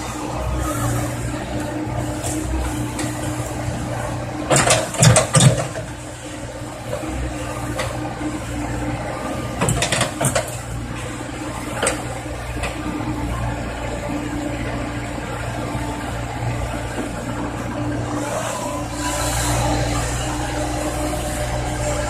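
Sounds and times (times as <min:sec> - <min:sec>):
excavator diesel drone: 0:00.0 - 0:22.0
excavator bucket clanking: 0:04.3 - 0:06.1, 0:09.5 - 0:10.7.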